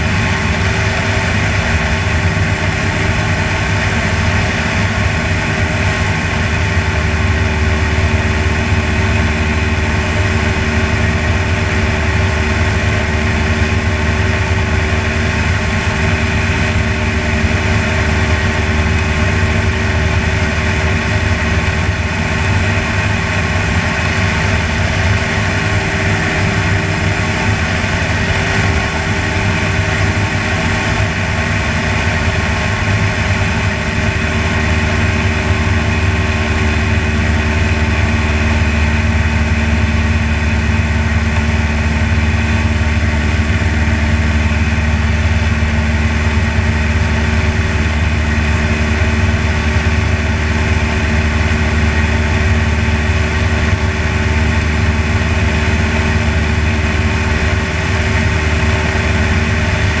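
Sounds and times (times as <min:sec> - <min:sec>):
light aircraft engine droning: 0:00.0 - 1:00.0.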